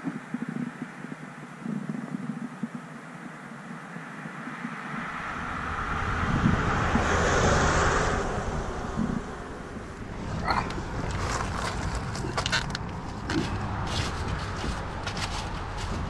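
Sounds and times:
vehicle driving past: 4.8 - 12.7.

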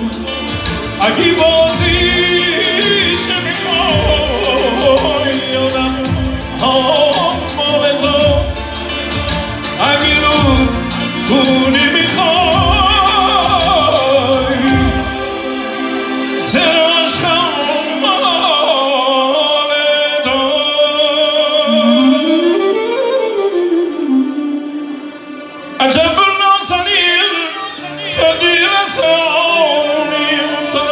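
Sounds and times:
drum beat: 0.0 - 15.2
clarinet melody: 0.0 - 18.6, 21.5 - 30.9.

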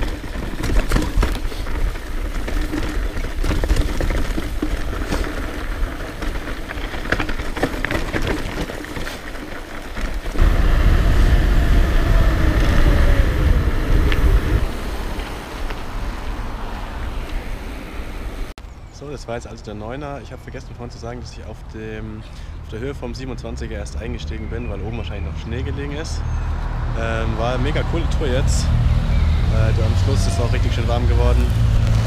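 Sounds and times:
bike rattling over stones: 0.0 - 17.6
wind rushing over microphone: 10.3 - 18.5.

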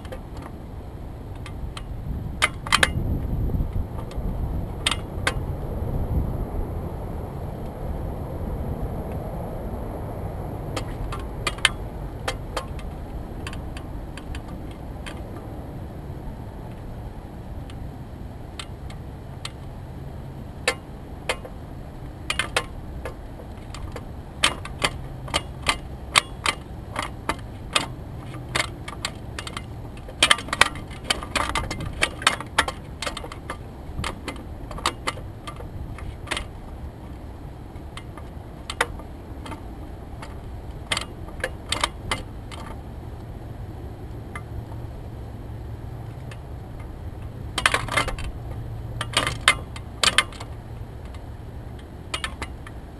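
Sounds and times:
low rumble: 0.0 - 30.2
light clicks and ticks: 22.3 - 43.3, 46.0 - 52.8.

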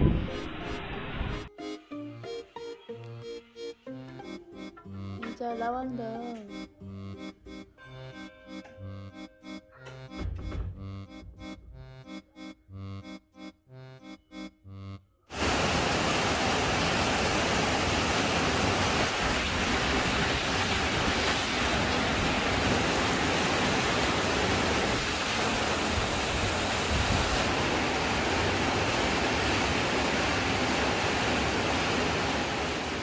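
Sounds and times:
heavy rain: 15.3 - 33.0.

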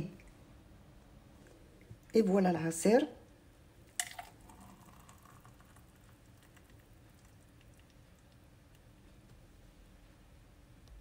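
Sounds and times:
juice pouring into glass: 3.9 - 7.9.

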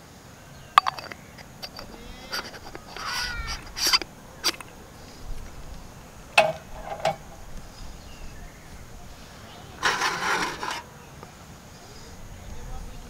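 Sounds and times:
ringing metal clinks: 0.8 - 3.3
metal coffee gear clicking: 0.8 - 4.7.

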